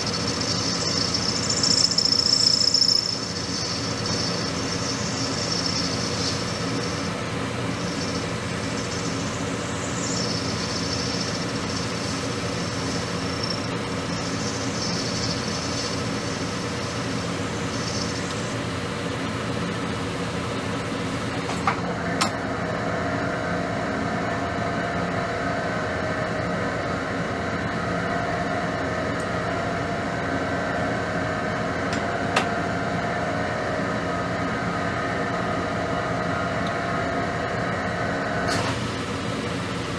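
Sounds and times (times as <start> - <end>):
high-pitched lathe cutting: 0.0 - 19.0
lathe machine hum: 0.0 - 39.9.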